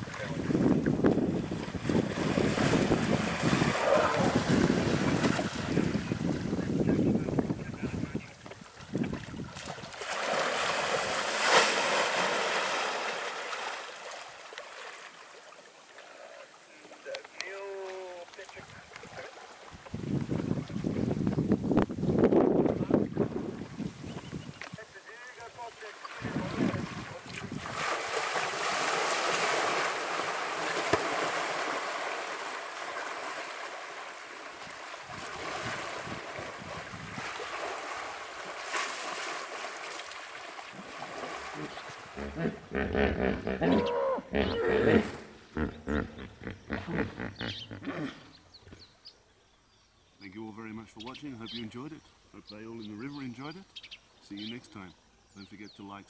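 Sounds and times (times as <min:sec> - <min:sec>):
water splashing and surging: 0:00.0 - 0:07.0, 0:07.7 - 0:21.2, 0:25.0 - 0:42.7.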